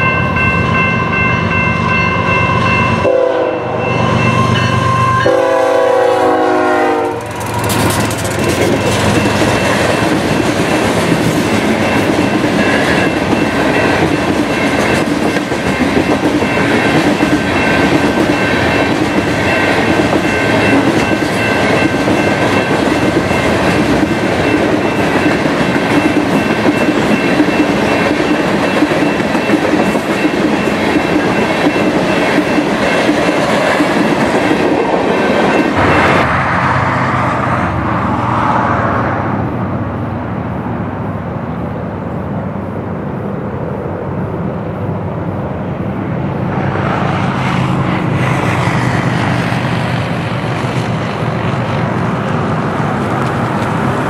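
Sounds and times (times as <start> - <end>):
faint high ring: 0.0 - 5.5
train wheels rumbling on rails: 0.0 - 39.6, 40.4 - 54.0.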